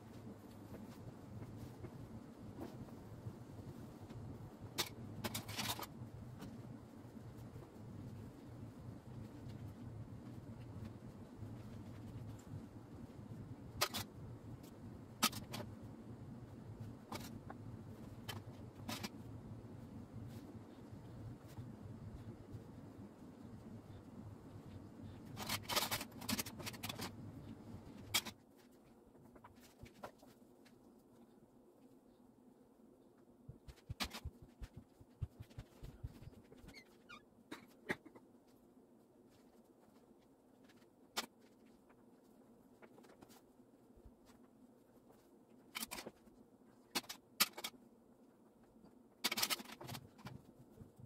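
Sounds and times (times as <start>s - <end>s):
low background hum: 0.0s - 51.0s
crayons and paper rustling: 3.6s - 12.7s, 16.8s - 19.3s, 24.6s - 31.3s, 33.5s - 37.2s, 39.2s - 47.8s, 48.6s - 51.0s.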